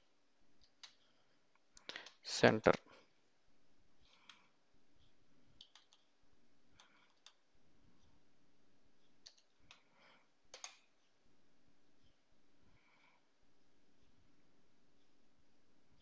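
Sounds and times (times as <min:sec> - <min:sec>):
computer keys clicking: 0:00.6 - 0:01.0, 0:05.6 - 0:06.1, 0:06.7 - 0:07.4, 0:09.2 - 0:09.9, 0:10.5 - 0:10.9.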